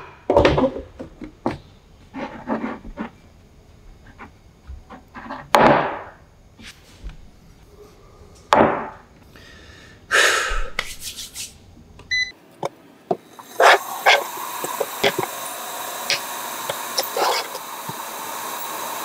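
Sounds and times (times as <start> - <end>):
loud breathy bursts: 9.3 - 10.8.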